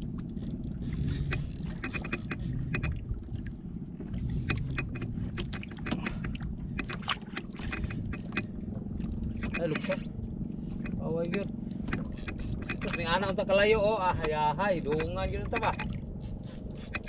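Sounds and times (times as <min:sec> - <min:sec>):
wind and sea water rumble: 0:00.0 - 0:17.0
fishing reel clicking: 0:00.2 - 0:02.9, 0:11.2 - 0:17.0.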